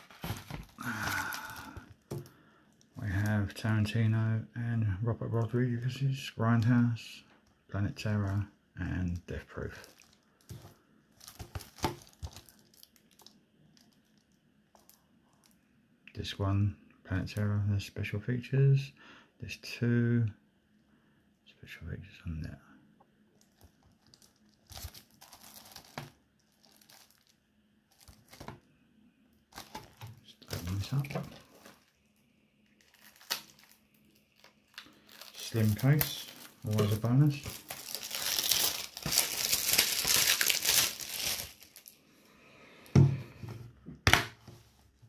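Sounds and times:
plastic wrap crinkling: 0.0s - 3.6s, 9.1s - 15.6s, 23.4s - 28.6s, 29.5s - 42.0s.

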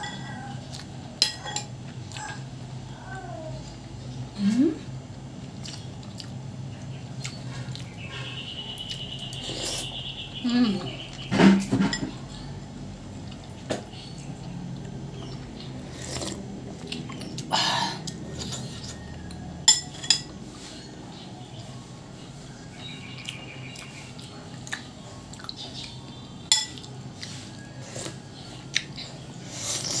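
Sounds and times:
cutlery clinking on ceramic bowl: 19.7s - 20.3s, 26.5s - 26.9s.

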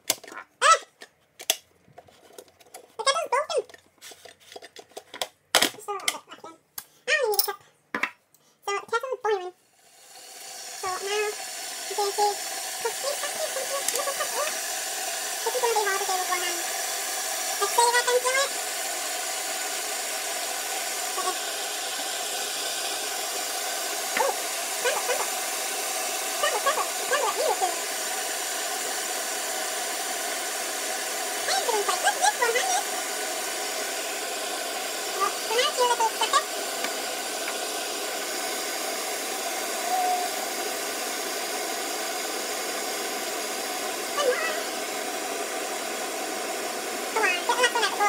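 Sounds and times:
electric kettle hissing: 9.6s - 48.0s.

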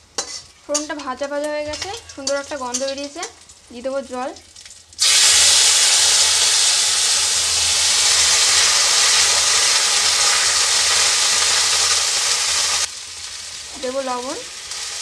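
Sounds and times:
water hissing in hot oil: 5.0s - 15.0s.

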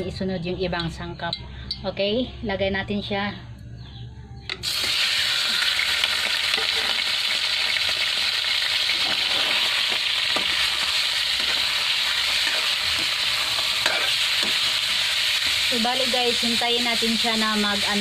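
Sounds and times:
meat sizzling in hot oil: 4.6s - 18.0s
spatula stirring meat: 8.9s - 15.7s.

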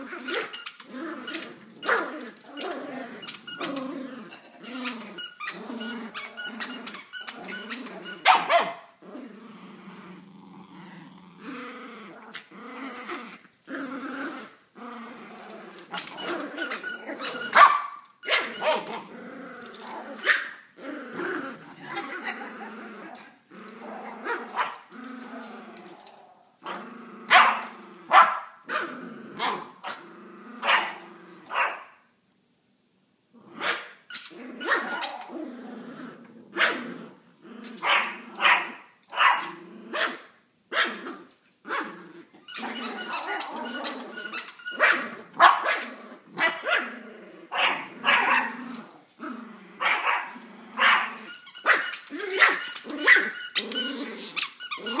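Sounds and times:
dogs growling: 0.0s - 17.6s, 18.4s - 28.2s, 28.8s - 31.5s, 34.3s - 38.8s, 39.4s - 40.1s, 40.9s - 51.4s, 52.0s - 55.0s
dogs barking: 8.2s - 8.8s, 17.6s - 18.9s, 27.3s - 28.8s, 37.8s - 40.2s, 44.8s - 46.9s, 47.5s - 48.5s, 49.8s - 51.1s.

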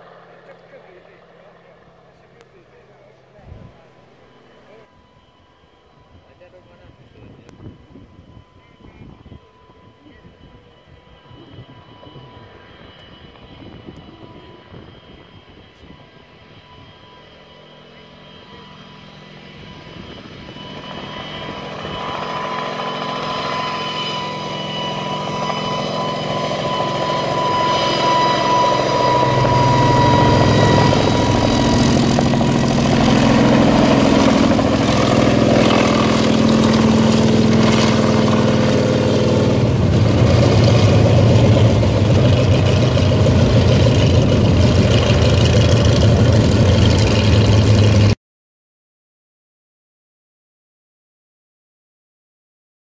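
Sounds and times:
helicopter engines and rotor beat: 0.0s - 48.2s.

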